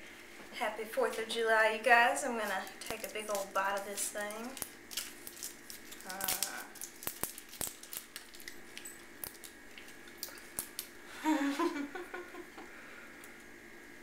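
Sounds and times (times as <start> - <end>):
person humming: 6.0 - 6.8.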